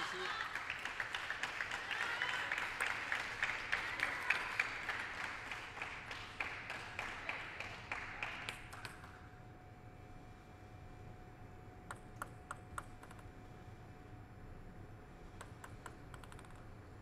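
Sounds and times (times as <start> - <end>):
spectators applauding: 0.0 - 9.1.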